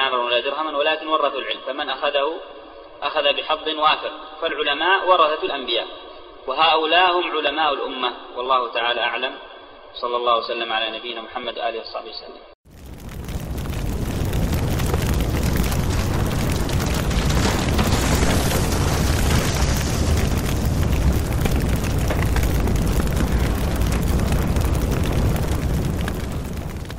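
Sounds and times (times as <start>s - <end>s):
wildfire roaring and crackling: 12.6s - 26.9s.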